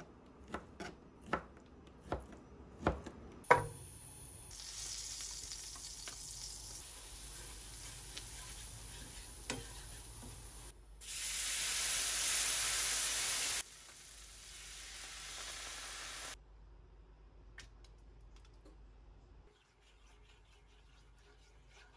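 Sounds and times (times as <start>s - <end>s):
butter and flour sizzling in pan: 3.5s - 16.4s.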